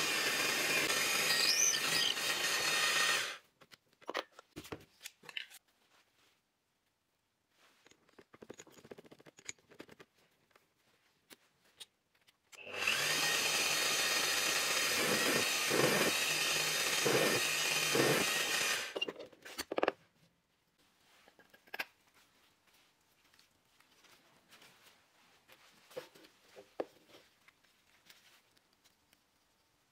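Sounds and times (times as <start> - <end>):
drill press boring into wood: 0.0 - 3.4, 12.6 - 19.1
gloved hands clicking and rustling: 7.9 - 12.6, 21.4 - 29.9.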